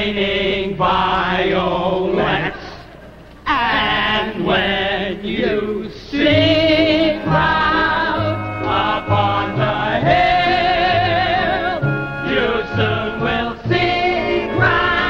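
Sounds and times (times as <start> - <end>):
male vocal quartet singing: 0.0 - 15.0.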